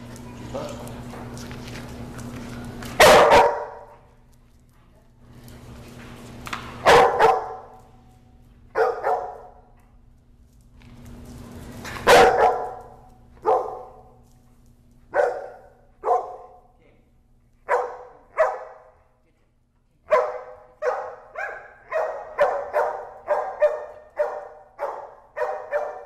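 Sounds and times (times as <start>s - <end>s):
dog barking: 3.0s - 3.9s, 6.8s - 7.8s, 8.8s - 9.6s, 12.0s - 14.1s, 15.1s - 16.6s, 17.6s - 19.0s, 20.1s - 26.0s.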